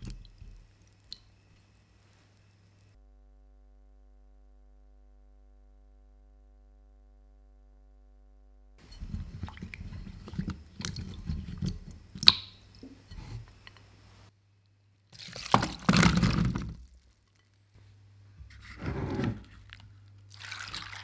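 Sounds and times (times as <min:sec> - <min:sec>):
water sloshing in bowl: 0:08.8 - 0:13.5, 0:15.2 - 0:17.2, 0:18.6 - 0:21.0.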